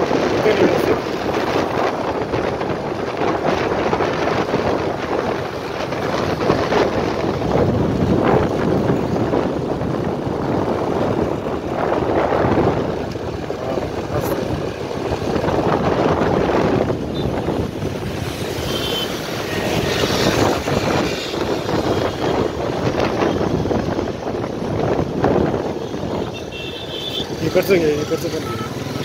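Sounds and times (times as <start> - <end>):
road traffic noise: 0.0 - 29.0
wind buffeting microphone: 0.0 - 29.0
engine noise: 5.2 - 29.0.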